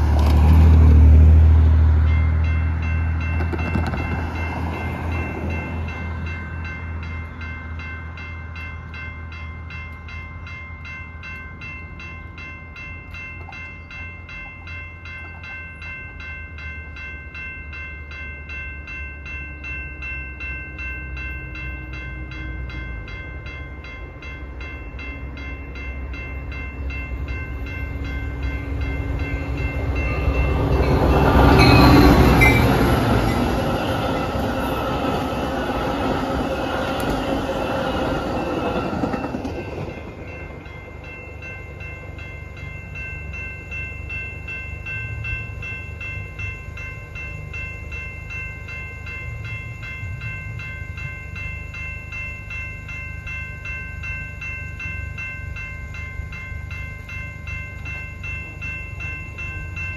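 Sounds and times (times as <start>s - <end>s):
approaching train: 0.0s - 59.9s
crossing warning bell ringing: 0.0s - 59.9s.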